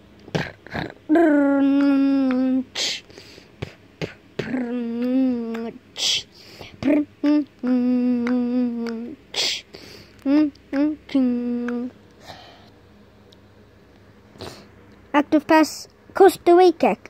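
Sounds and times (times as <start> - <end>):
person humming long notes: 0.3 - 3.0, 4.0 - 12.4
breathy hisses: 2.7 - 4.2, 9.3 - 10.2.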